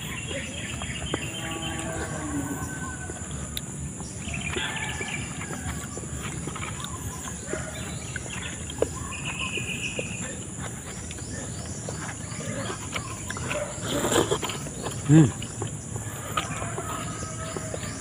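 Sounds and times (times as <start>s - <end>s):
birds chirping: 0.0s - 18.0s
coconut flesh scraping: 4.2s - 18.0s.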